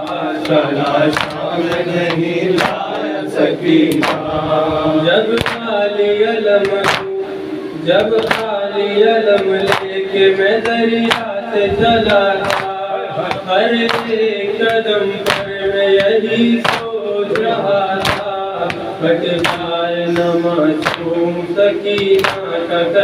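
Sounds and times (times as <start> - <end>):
man chanting into a microphone: 0.0 - 23.0
men chanting together: 0.0 - 23.0
hands slapping chests: 0.1 - 3.1, 3.9 - 4.3, 5.4 - 5.7, 6.6 - 7.1, 8.0 - 8.6, 9.4 - 10.0, 10.6 - 11.3, 12.1 - 21.1, 22.0 - 22.5.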